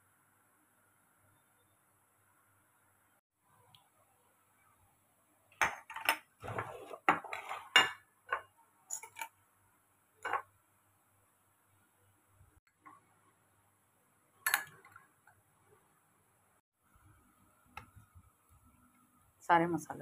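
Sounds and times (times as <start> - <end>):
metal spoon clinking on steel plate: 8.9 - 9.3.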